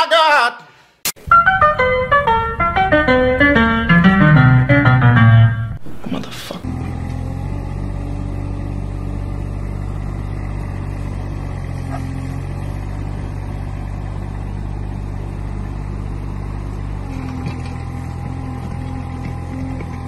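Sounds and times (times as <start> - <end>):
diesel engine running: 1.2 - 20.0
excavator digging soil: 5.8 - 20.0.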